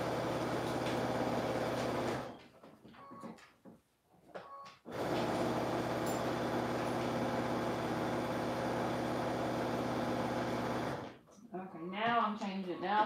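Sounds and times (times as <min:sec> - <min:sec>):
sewing machine stitching: 0:00.0 - 0:02.4, 0:04.9 - 0:11.2.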